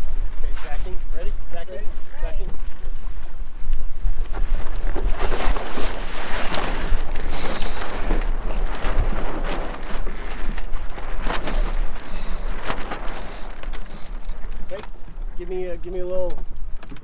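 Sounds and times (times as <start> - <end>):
sails and rigging rattling: 0.0 - 17.0
wind rumbling on microphone: 0.0 - 17.0.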